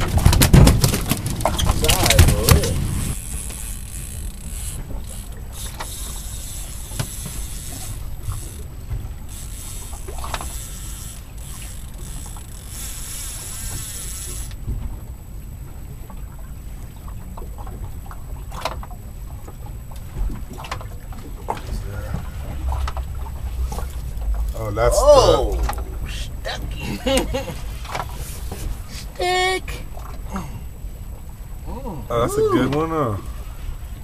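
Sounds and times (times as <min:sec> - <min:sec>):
wind buffeting microphone: 0:00.0 - 0:12.6, 0:20.1 - 0:28.9
water sloshing against hull: 0:00.0 - 0:34.0.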